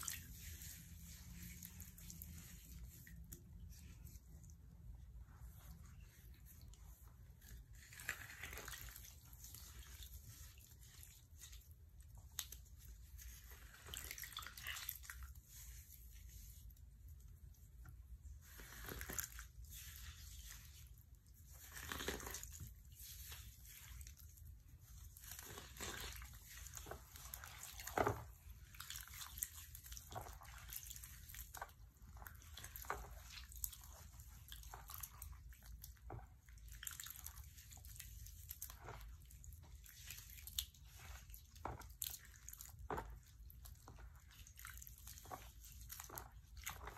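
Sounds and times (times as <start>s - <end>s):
wet foam crunching and squelching: 25.0s - 35.3s.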